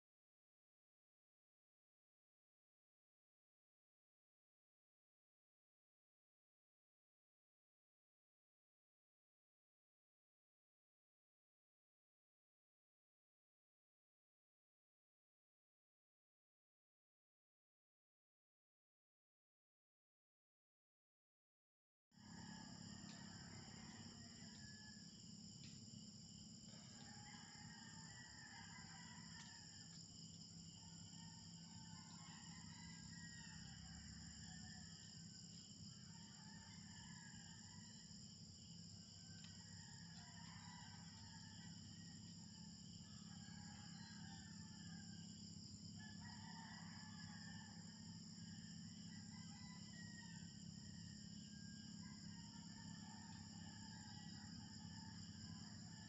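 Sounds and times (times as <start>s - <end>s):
insects trilling: 22.2s - 56.0s.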